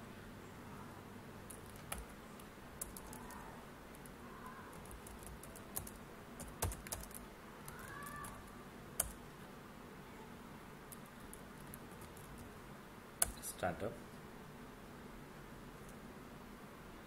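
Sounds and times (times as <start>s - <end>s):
computer keyboard key clicks: 2.8s - 3.2s, 4.7s - 8.4s.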